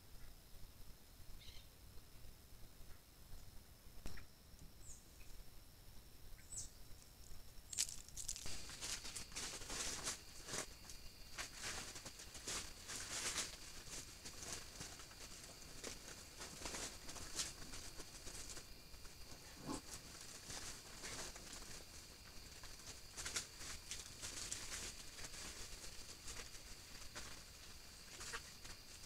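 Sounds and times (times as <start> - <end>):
rustling in dry leaves: 7.7 - 29.0.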